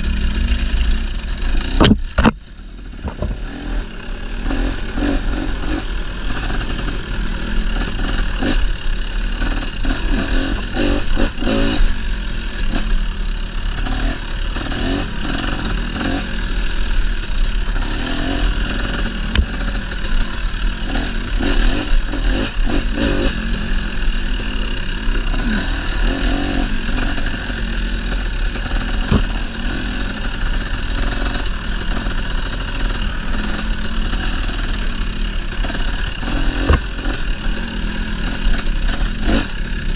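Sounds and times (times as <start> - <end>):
dirt bike engine: 0.0 - 39.9
bike knocks and rattles: 1.5 - 3.5, 19.0 - 22.8, 28.5 - 30.4, 35.6 - 37.6.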